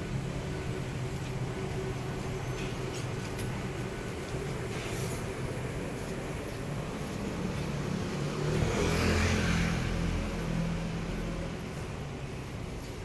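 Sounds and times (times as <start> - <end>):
vehicle engine driving past: 7.2 - 12.0.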